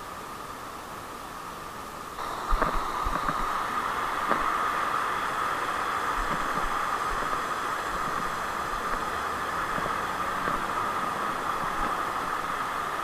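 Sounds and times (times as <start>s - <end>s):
outdoor rushing hiss: 0.0s - 13.0s.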